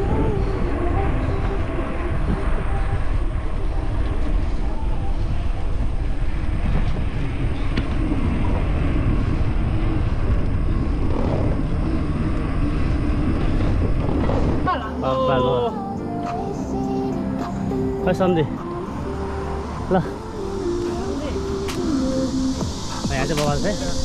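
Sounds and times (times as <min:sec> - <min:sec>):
wind buffeting microphone: 0:00.0 - 0:16.4.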